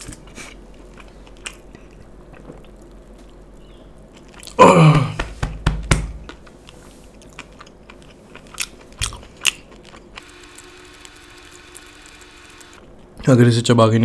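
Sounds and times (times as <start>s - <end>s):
man burping: 4.5s - 5.2s.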